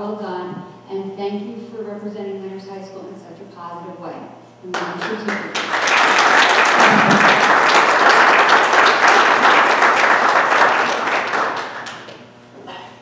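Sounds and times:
people clapping: 0:04.7 - 0:12.2.

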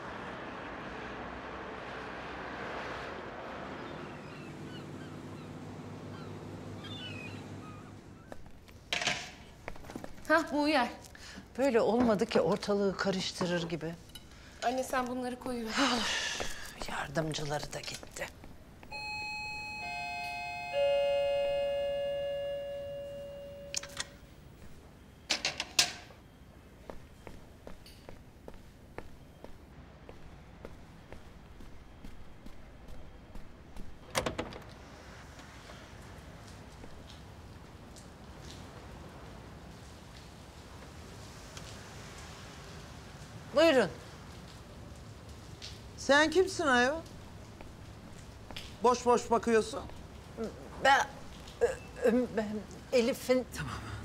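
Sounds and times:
bird calls: 0:03.8 - 0:08.4
low steady hum: 0:17.8 - 0:25.3
doorbell chime ringing: 0:18.9 - 0:24.2.

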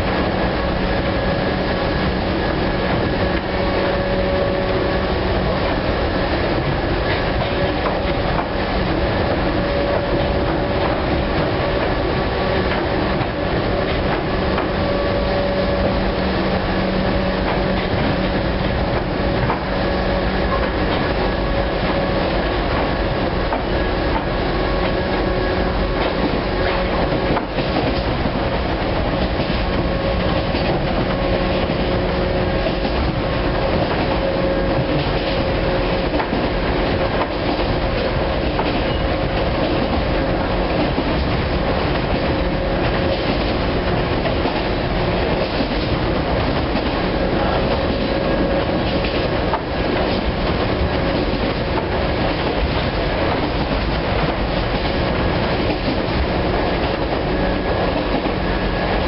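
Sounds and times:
electric train drive hum: 0:00.0 - 0:59.0
train wheels clattering on rail: 0:00.0 - 0:59.0.

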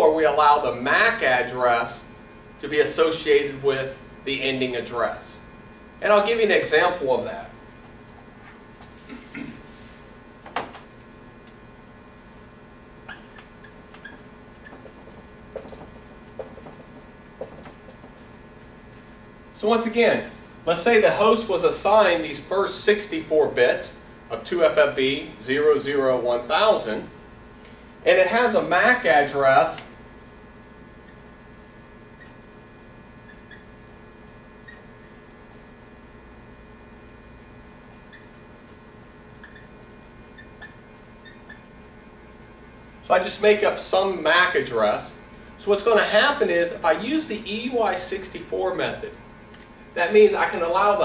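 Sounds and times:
low room hum: 0:00.0 - 0:51.0
marker squeaking on whiteboard: 0:13.0 - 0:19.2, 0:31.0 - 0:32.5, 0:33.2 - 0:35.8, 0:37.0 - 0:41.9.

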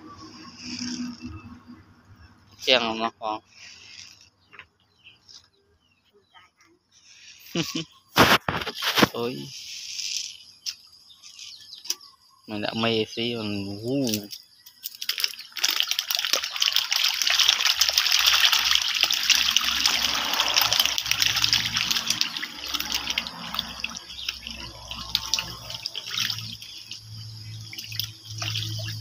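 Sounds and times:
fish thrashing and splashing water: 0:14.0 - 0:29.0.

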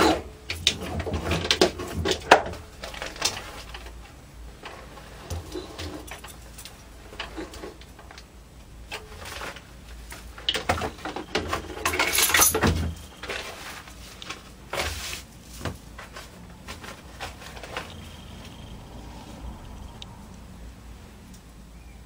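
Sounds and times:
paper rustling and crackling: 0:00.8 - 0:06.3, 0:08.9 - 0:18.6.

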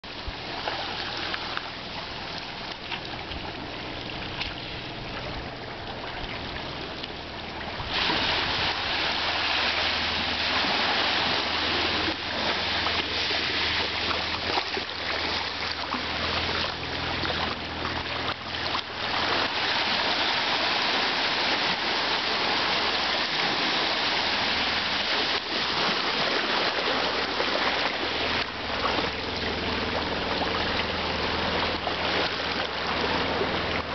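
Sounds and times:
waves washing over shingle: 0:06.4 - 0:33.9.

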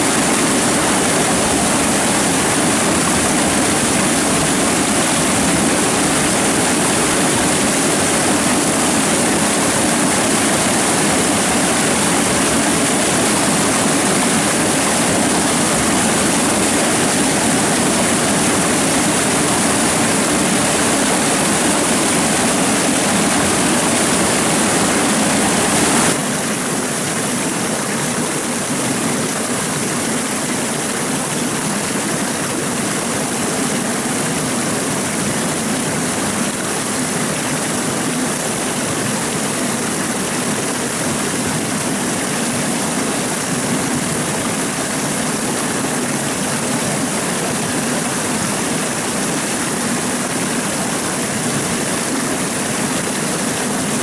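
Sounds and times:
stream water rushing: 0:00.0 - 0:54.0.

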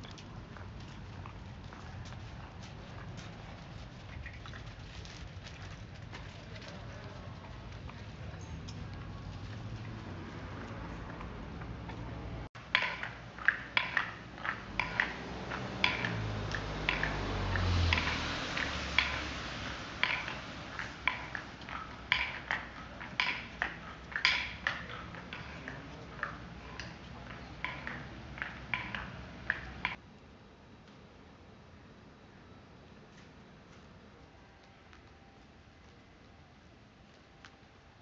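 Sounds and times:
car passing with low rumble: 0:00.0 - 0:30.0
wooden sandals clacking on pavement: 0:00.0 - 0:30.0.

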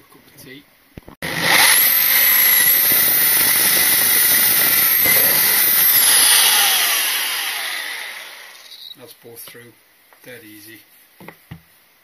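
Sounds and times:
hole saw cutting wood: 0:01.2 - 0:08.9
power drill motor whine: 0:01.2 - 0:08.9.

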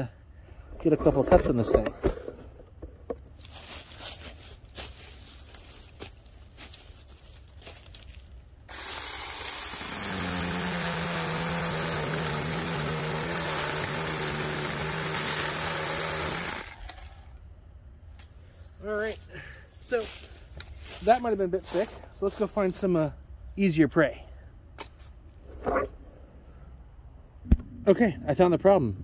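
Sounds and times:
branches rustling: 0:03.3 - 0:11.0, 0:18.0 - 0:23.6
electric chainsaw motor humming: 0:08.7 - 0:17.1.

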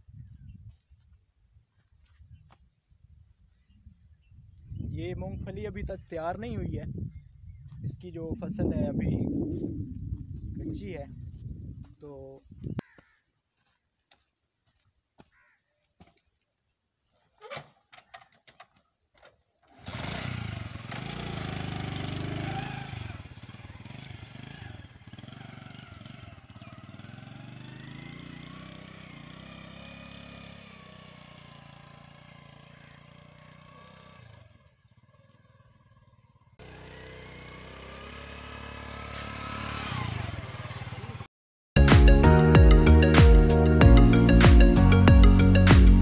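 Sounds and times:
motorcycle kick-start: 0:17.4 - 0:29.2
motorcycle engine running: 0:19.9 - 0:40.2.

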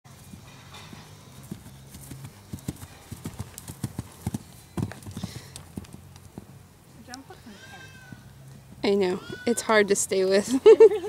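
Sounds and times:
horse hooves thudding on dirt: 0:00.1 - 0:10.0.

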